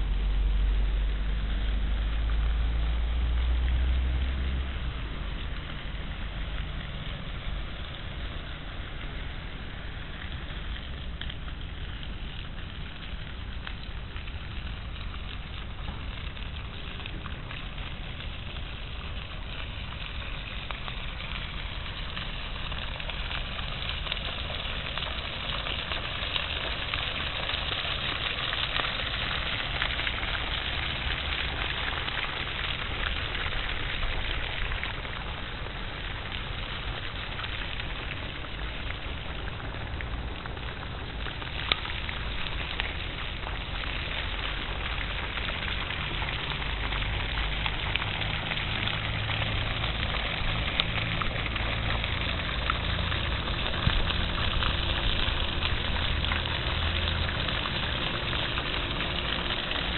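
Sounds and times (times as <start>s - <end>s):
low rumble: 0.0s - 25.9s, 27.8s - 59.9s
outdoor hiss: 0.0s - 59.9s.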